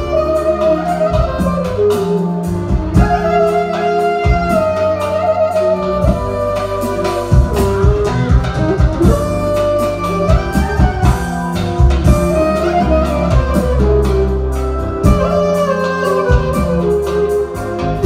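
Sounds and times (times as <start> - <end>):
clarinet melody: 0.0 - 18.0
drum kit: 0.0 - 18.0
hand drum beats: 0.0 - 18.0
keyboard bass: 0.0 - 18.0.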